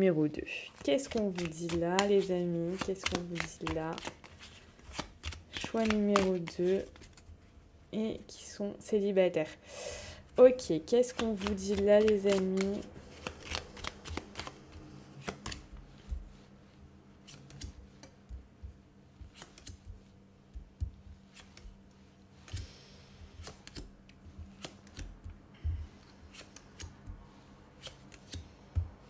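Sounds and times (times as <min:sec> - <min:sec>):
cards snapping on glass table: 0:19.3 - 0:20.0, 0:23.4 - 0:23.9, 0:24.5 - 0:25.2, 0:27.8 - 0:28.5.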